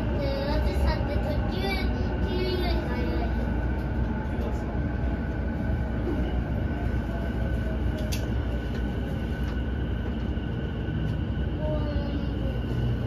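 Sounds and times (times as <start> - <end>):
train wheels rumbling on rail: 0.0 - 13.0
train whine: 0.0 - 13.0.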